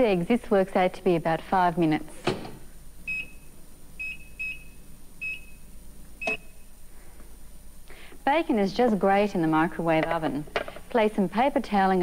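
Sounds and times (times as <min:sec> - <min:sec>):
microwave touch-pad beeps: 0:03.1 - 0:06.7.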